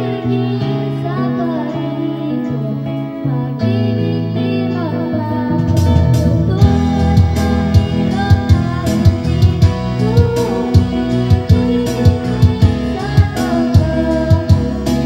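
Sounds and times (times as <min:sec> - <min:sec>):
karaoke backing music: 0:00.0 - 0:15.0
drum beat: 0:05.6 - 0:15.0.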